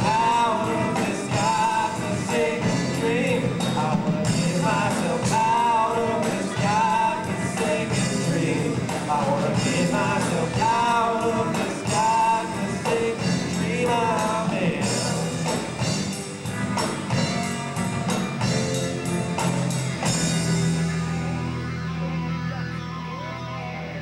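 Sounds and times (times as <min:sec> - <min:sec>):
person singing: 0:00.0 - 0:15.8
live rock band playing: 0:00.0 - 0:24.0.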